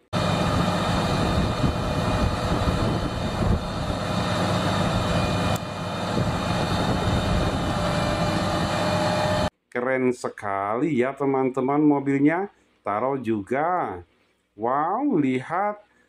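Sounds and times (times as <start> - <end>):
tow truck diesel engine running: 0.2 - 9.5.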